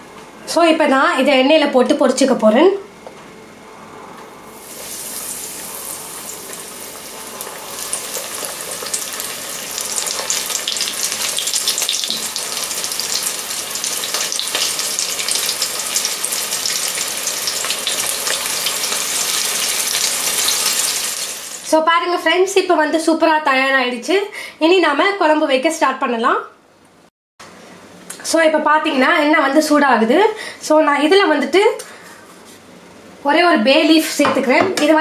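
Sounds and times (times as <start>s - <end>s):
meatballs sizzling in hot oil: 4.6s - 21.7s.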